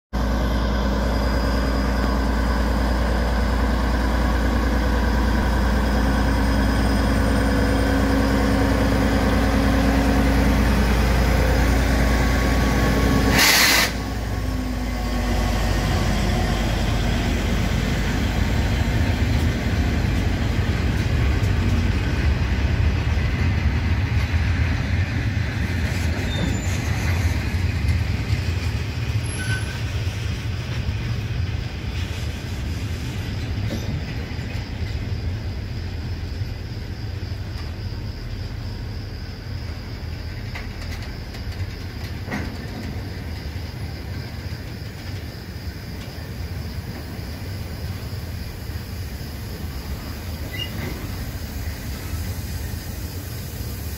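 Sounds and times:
diesel locomotive engine droning: 0:00.1 - 0:53.9
train wheels rumbling on rail: 0:00.1 - 0:53.9
short loud burst of noise: 0:13.2 - 0:14.1.

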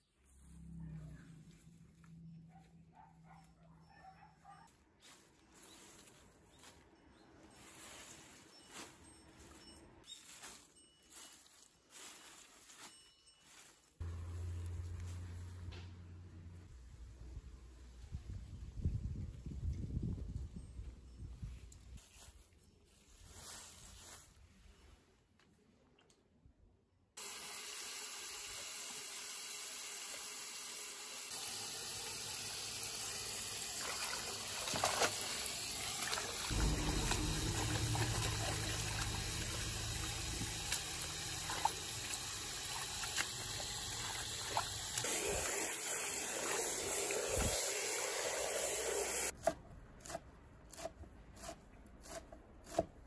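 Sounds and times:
hose water running into metal basin: 0:27.2 - 0:49.3
hands swishing greens in water: 0:33.8 - 0:45.5
knife chopping on wooden board: 0:50.8 - 0:53.0.

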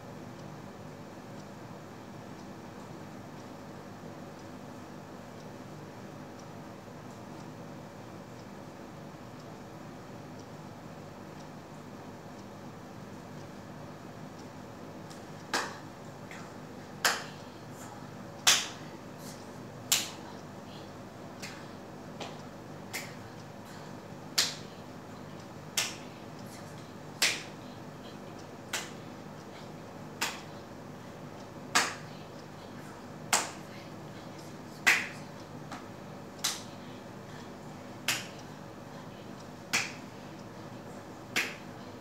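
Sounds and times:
steady low hum: 0:00.0 - 0:42.0
sharp hand claps: 0:15.5 - 0:15.8, 0:18.4 - 0:18.8, 0:30.2 - 0:30.4, 0:31.7 - 0:32.0, 0:33.3 - 0:33.6, 0:34.8 - 0:35.8, 0:38.1 - 0:38.3, 0:39.7 - 0:40.0, 0:41.4 - 0:41.6.

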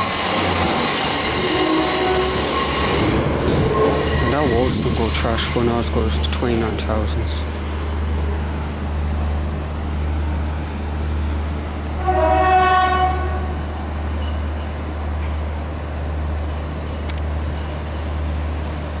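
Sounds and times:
train horn: 0:00.0 - 0:03.1, 0:12.0 - 0:13.7.

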